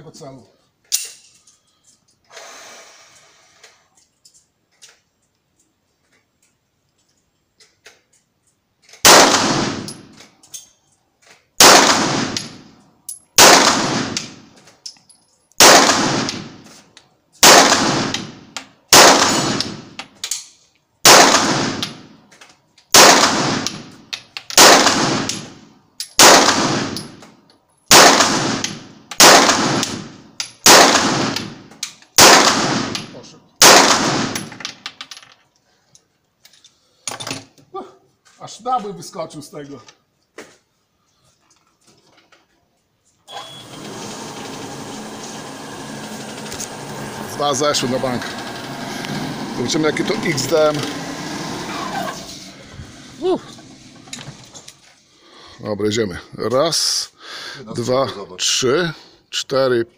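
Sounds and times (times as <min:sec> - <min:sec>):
pistol shots with ringing echo: 0:09.0 - 0:10.0, 0:11.6 - 0:12.6, 0:13.4 - 0:14.4, 0:15.6 - 0:16.6, 0:17.4 - 0:19.9, 0:21.0 - 0:22.0, 0:23.0 - 0:23.8, 0:24.6 - 0:25.6, 0:26.2 - 0:27.2, 0:27.9 - 0:31.6, 0:32.2 - 0:34.6.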